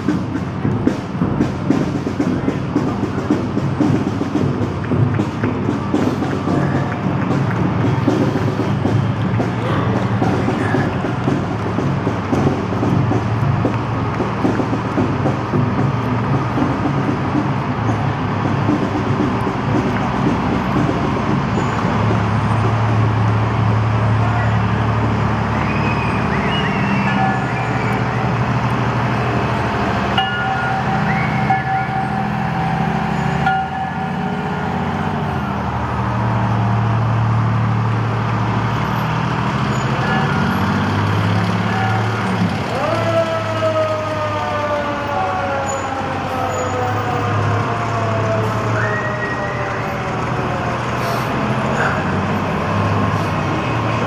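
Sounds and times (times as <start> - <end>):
fire engines driving past: 0.0 - 54.0.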